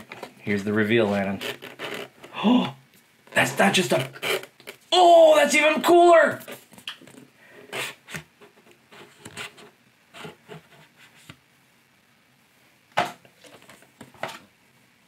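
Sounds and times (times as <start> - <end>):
box case rustling: 0.0 - 2.3, 3.3 - 4.8.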